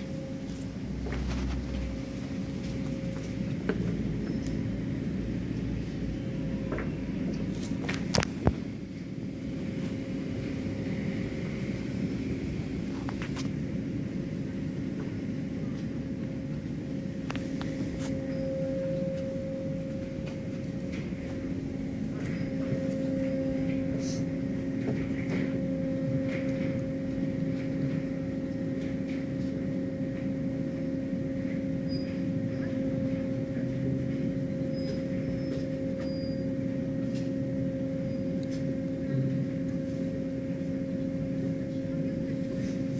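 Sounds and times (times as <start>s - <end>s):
low rumble: 0.0s - 31.8s
car wash machinery hum: 0.0s - 42.9s.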